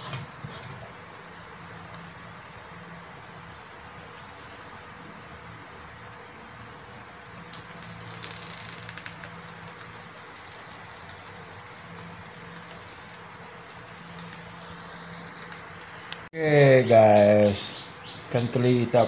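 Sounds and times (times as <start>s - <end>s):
faint crackles and ticks: 7.4s - 14.5s, 15.3s - 16.3s.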